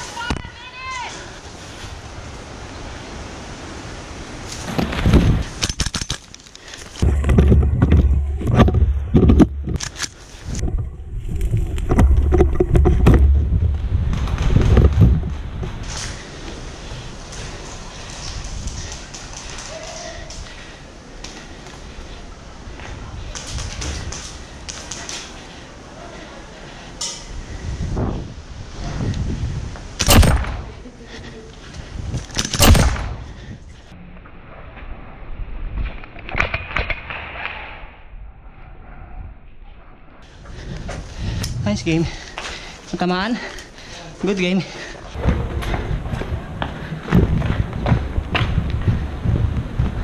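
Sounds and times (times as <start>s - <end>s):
gear rattling and rustling: 4.5s - 16.3s
rumbling knocks on microphone: 7.0s - 9.8s, 10.6s - 15.4s
footsteps on concrete: 40.4s - 50.0s.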